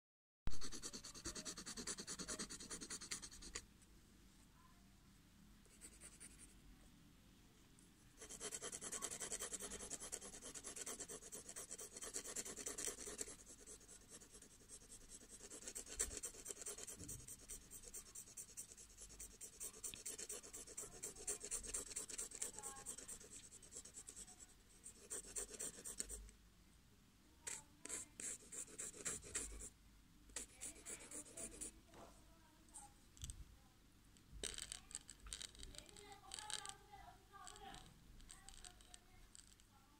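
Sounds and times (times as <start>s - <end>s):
pencil scratching on paper: 0.5s - 3.6s, 5.7s - 6.5s, 8.2s - 26.3s, 27.5s - 29.7s, 30.4s - 31.8s.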